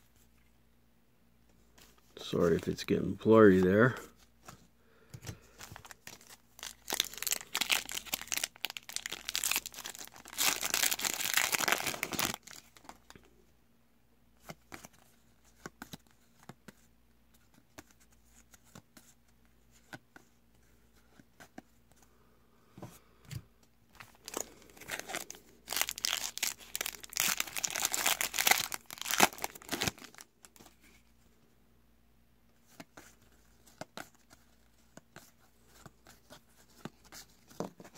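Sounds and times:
foil wrappers tearing and crinkling: 0:05.8 - 0:12.9, 0:24.2 - 0:30.2.

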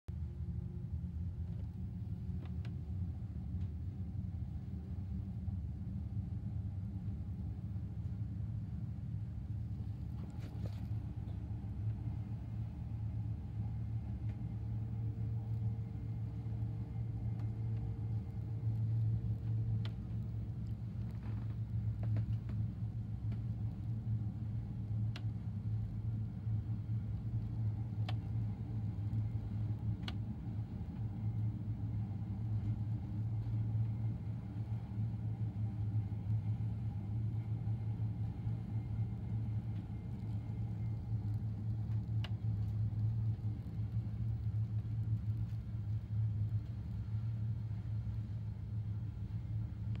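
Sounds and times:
low engine rumble: 0:00.0 - 0:50.0
faint light clicks: 0:25.1 - 0:25.4, 0:28.0 - 0:28.4, 0:30.0 - 0:30.3, 0:39.7 - 0:47.0.

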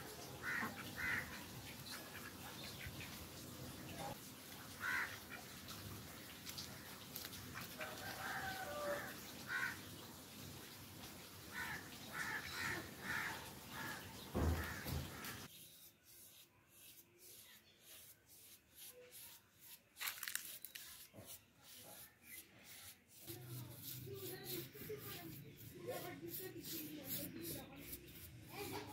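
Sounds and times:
paintbrush rubbing on flower pot: 0:14.6 - 0:28.9.

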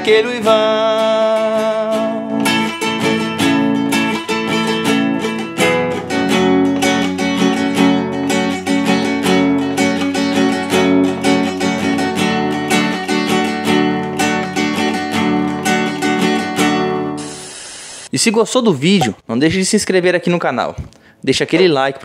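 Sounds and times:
classical guitar strumming: 0:00.0 - 0:17.4.

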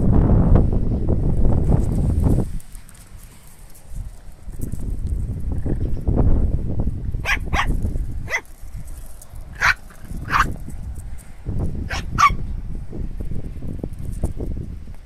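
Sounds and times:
steady low rumble: 0:00.0 - 0:15.0
small dog yapping: 0:07.2 - 0:08.5, 0:09.6 - 0:10.6, 0:11.9 - 0:12.4.

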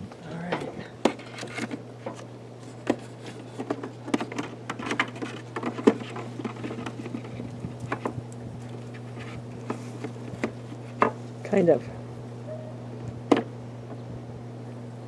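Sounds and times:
wooden frames knocking and scraping: 0:00.4 - 0:08.2.

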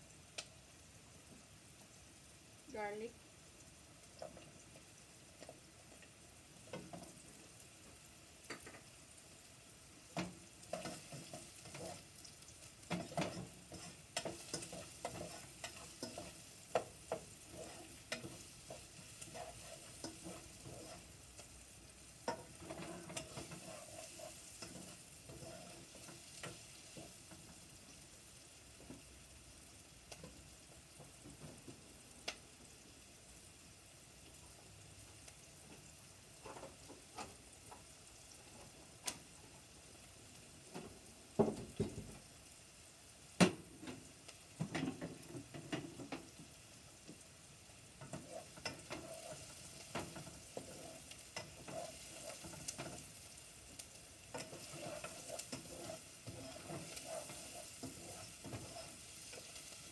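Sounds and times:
faint sizzle of frying: 0:00.0 - 0:59.9
utensil scraping a saucepan: 0:10.7 - 0:12.1, 0:12.9 - 0:21.5, 0:22.3 - 0:26.6, 0:48.0 - 0:53.0, 0:54.3 - 0:59.9.

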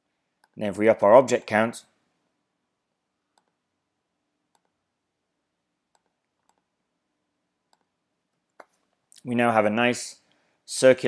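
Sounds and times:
computer mouse clicks: 0:03.3 - 0:03.6, 0:04.5 - 0:04.8, 0:05.9 - 0:06.7, 0:07.7 - 0:07.9.

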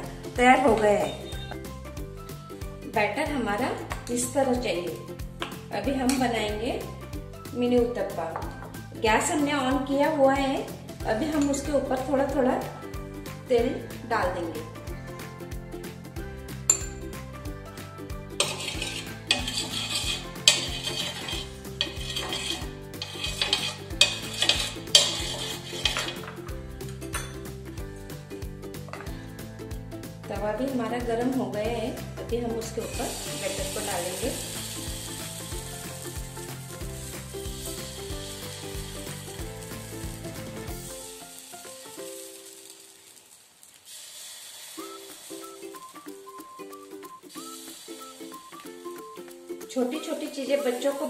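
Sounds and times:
oil sizzling: 0:00.0 - 0:30.2, 0:31.2 - 0:51.0
background music: 0:00.0 - 0:42.9, 0:44.8 - 0:51.0
spoon scraping and tapping pan: 0:11.3 - 0:11.7, 0:16.7 - 0:17.1, 0:18.4 - 0:27.5, 0:28.9 - 0:29.1.

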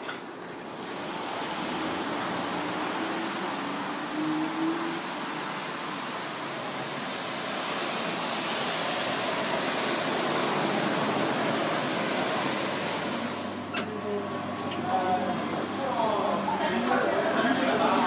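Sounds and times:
traffic on a wet road: 0:00.0 - 0:13.9.

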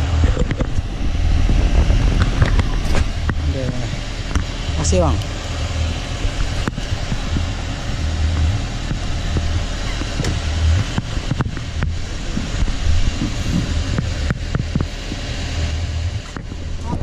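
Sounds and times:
boat engine running: 0:00.0 - 0:17.0
wind on microphone: 0:00.0 - 0:17.0
sharp clicks and knocks: 0:08.3 - 0:15.2.

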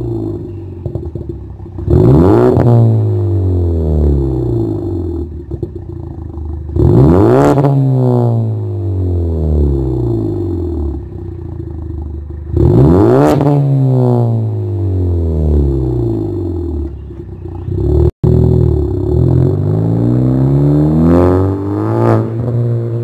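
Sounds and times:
car engine revving: 0:00.0 - 0:23.0
car pulling away: 0:00.0 - 0:23.0.

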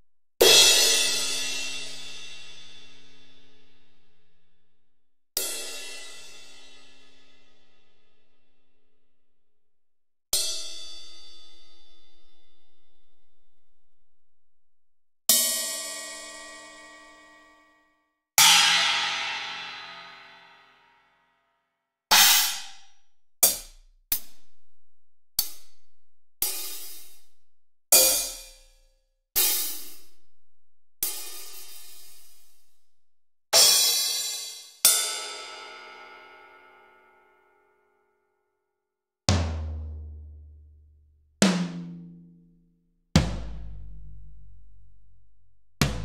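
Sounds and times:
ringing cymbal-like drum hits: 0:18.4 - 0:20.8.

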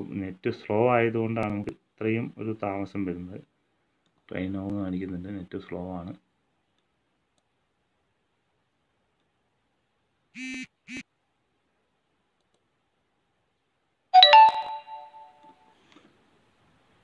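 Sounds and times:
short buzzy tones: 0:10.4 - 0:11.0.

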